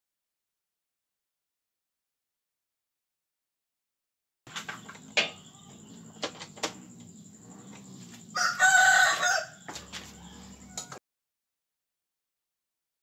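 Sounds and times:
rooster crowing: 8.2 - 11.0.

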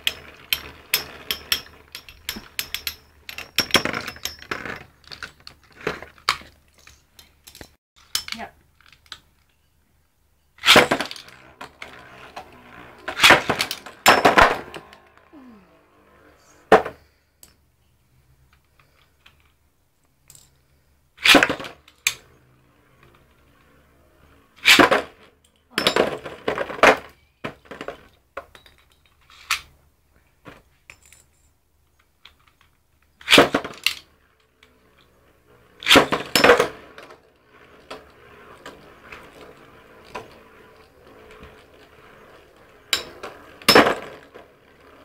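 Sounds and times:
spinning tops whirring: 0.0 - 5.4, 10.6 - 16.9, 33.2 - 45.0
spinning tops clashing and clattering: 0.0 - 8.4, 10.6 - 17.6, 34.8 - 45.0.

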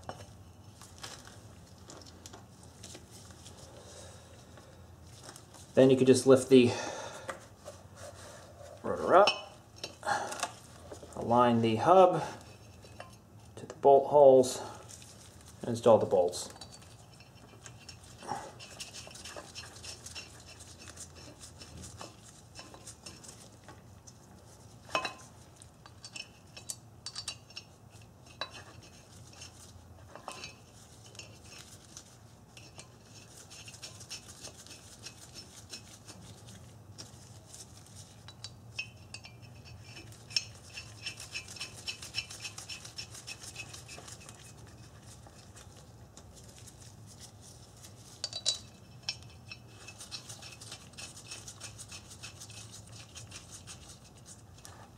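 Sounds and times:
metal bolts clicking and clinking: 24.9 - 27.7, 48.2 - 51.4.

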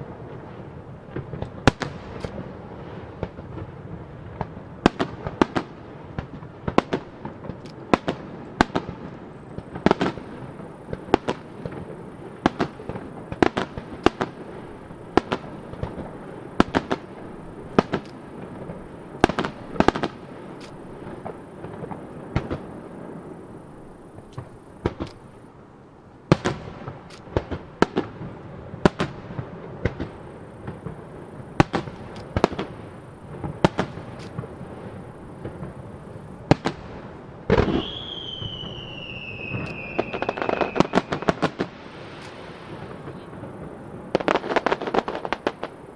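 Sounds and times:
crackling firework bursts: 0.0 - 45.9
firework shells bursting: 4.9 - 25.6, 26.3 - 45.9
falling firework whistle: 26.3 - 45.9.

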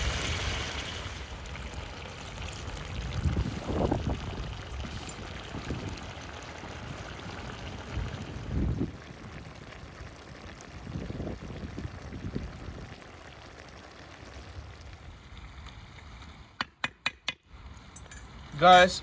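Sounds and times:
stew bubbling in a pan: 0.0 - 16.6.

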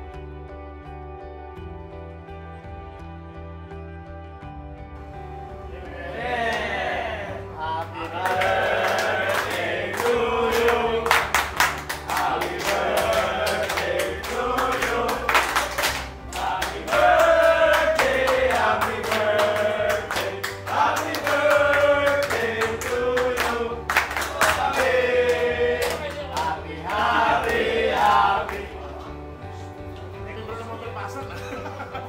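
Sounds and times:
men singing together: 5.7 - 29.0
hand claps: 6.5 - 6.7, 8.1 - 28.6.

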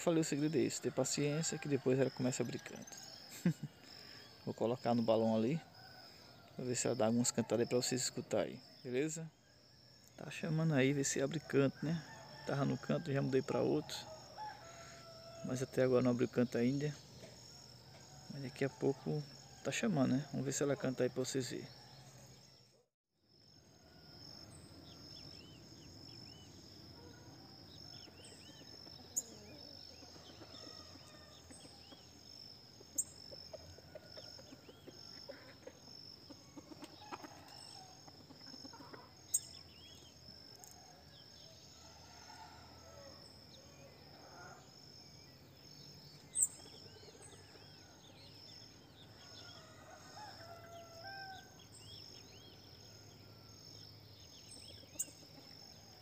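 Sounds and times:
sharp bird chirps: 46.1 - 47.4.

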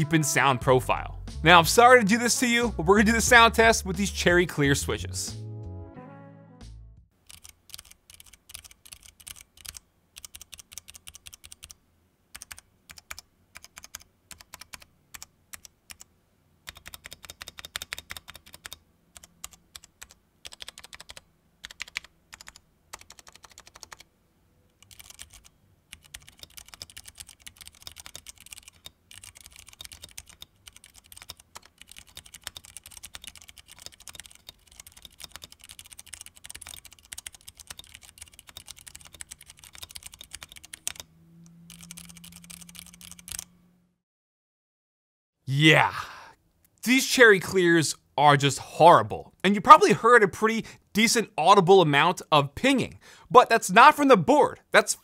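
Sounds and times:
mechanical keyboard typing: 7.2 - 16.1, 16.7 - 24.1, 24.8 - 41.1, 41.7 - 43.5.

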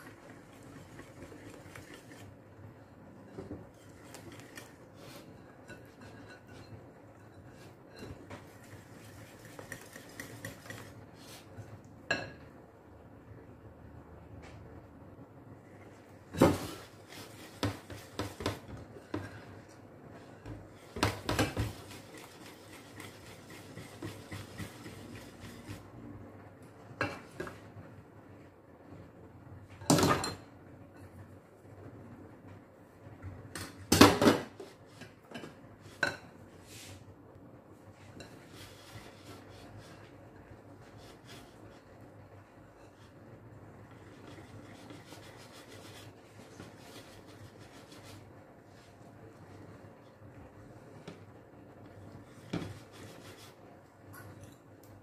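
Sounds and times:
whisk scraping glass bowl: 0.0 - 2.4, 3.7 - 11.0, 20.8 - 25.9, 38.2 - 42.0, 43.8 - 48.3, 52.2 - 53.6.

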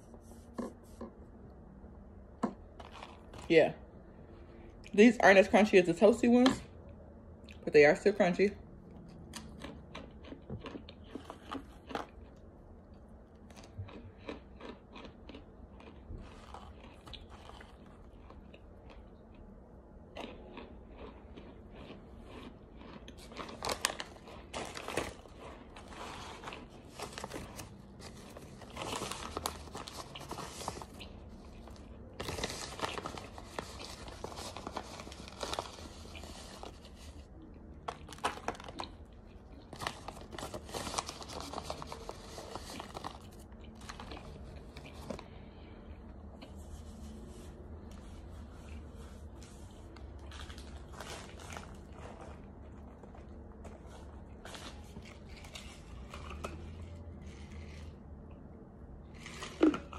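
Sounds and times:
person chewing crunchy food: 2.4 - 3.5, 8.9 - 58.3
plastic bag rustling: 23.2 - 37.3, 39.7 - 45.2.

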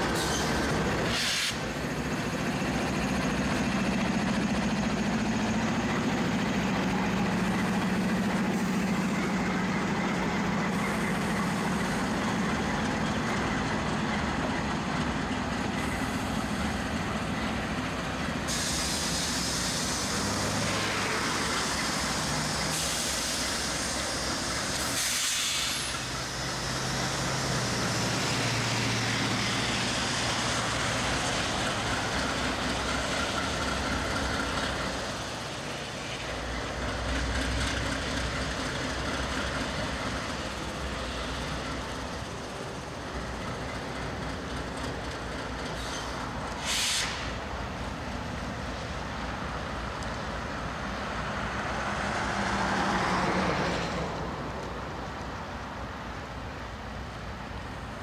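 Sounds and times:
loud air hiss: 0.0 - 1.8, 18.4 - 32.4, 45.8 - 47.6
locomotive engine drone: 0.0 - 58.0.

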